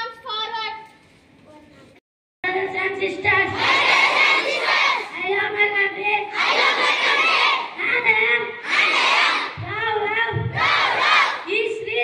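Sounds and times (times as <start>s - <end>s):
boy speaking into a microphone: 0.0s - 3.7s, 5.1s - 6.4s, 7.7s - 8.6s, 9.5s - 10.6s, 11.4s - 12.0s
children reciting in unison: 3.4s - 9.6s, 10.5s - 11.5s.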